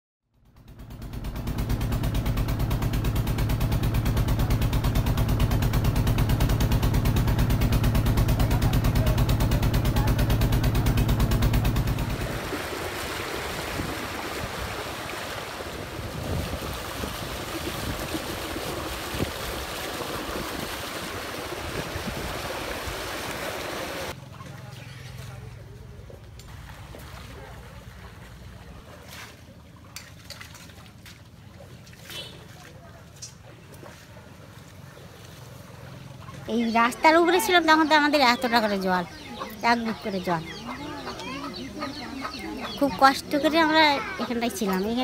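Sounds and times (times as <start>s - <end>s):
boat engine running: 0.3s - 45.0s
wind and water noise: 1.3s - 45.0s
small water splashes: 11.8s - 25.5s, 26.1s - 36.5s.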